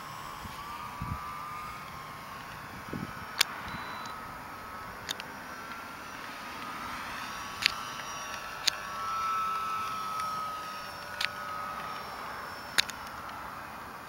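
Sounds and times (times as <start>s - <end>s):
model plane motor whining: 0.0s - 14.0s
sharp clicks: 3.3s - 13.4s.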